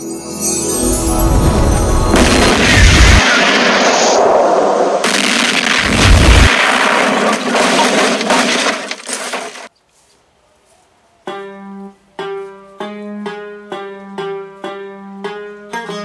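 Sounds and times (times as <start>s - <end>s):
loud noisy rush: 1.2s - 9.0s
plucked string instrument music: 11.3s - 16.0s.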